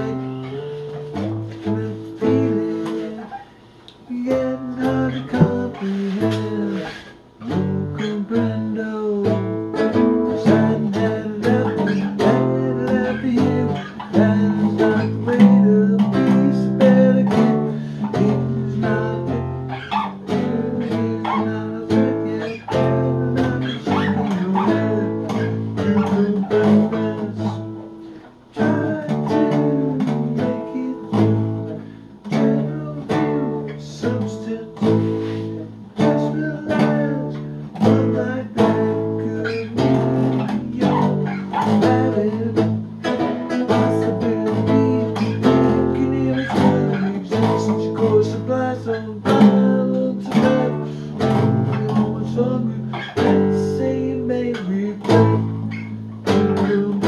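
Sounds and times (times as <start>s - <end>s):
classical guitar playing: 0.0s - 57.0s.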